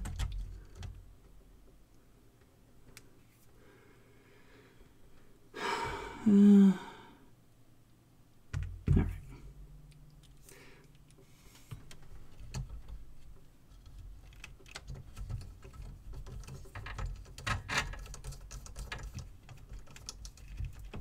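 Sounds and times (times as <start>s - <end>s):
person sighing: 5.5s - 7.3s.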